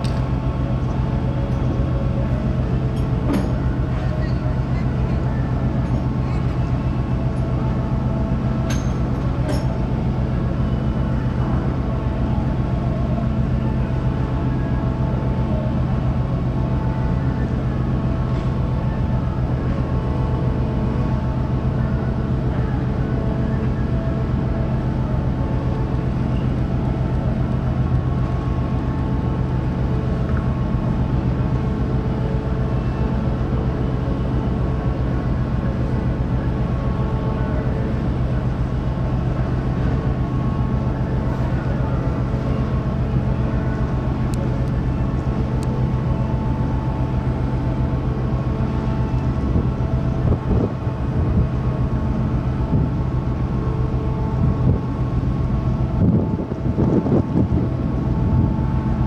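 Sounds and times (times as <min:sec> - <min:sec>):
ship diesel engines droning: 0:00.0 - 0:59.0
wind buffeting microphone: 0:55.8 - 0:58.8.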